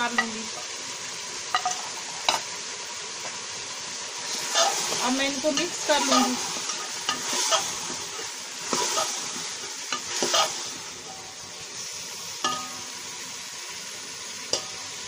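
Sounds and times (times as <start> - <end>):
vegetables sizzling in oil: 0.0 - 15.0
metal spoon scraping a pot: 4.3 - 9.3, 9.9 - 10.8.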